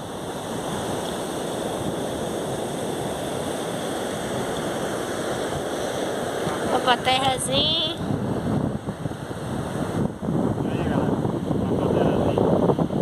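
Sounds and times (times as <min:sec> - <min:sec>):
ocean surf hissing: 0:00.0 - 0:13.0.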